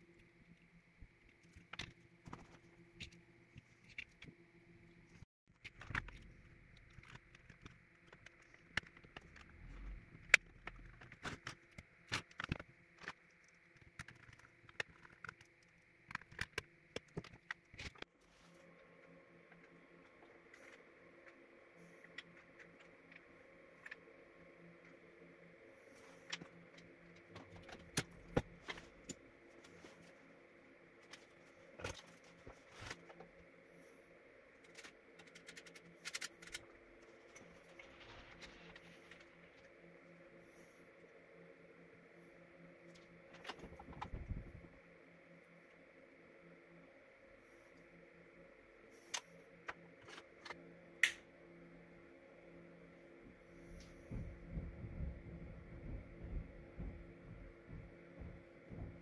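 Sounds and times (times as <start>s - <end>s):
faint electrical hum: 0.0s - 59.0s.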